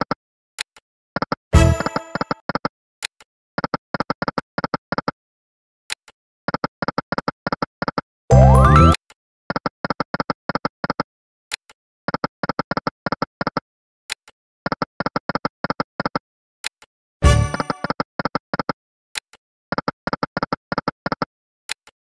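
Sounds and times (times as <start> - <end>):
slot machine win jingle: 8.3 - 9.0.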